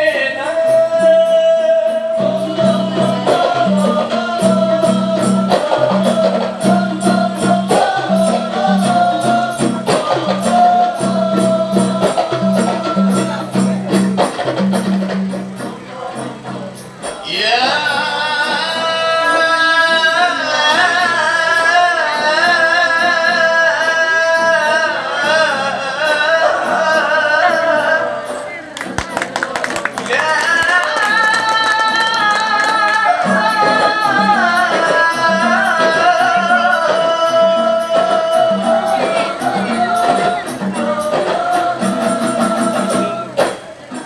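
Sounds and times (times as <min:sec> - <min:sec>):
person singing ornamented lines: 0:00.0 - 0:14.6, 0:30.1 - 0:44.0
light hand percussion: 0:00.5 - 0:21.0, 0:26.1 - 0:44.0.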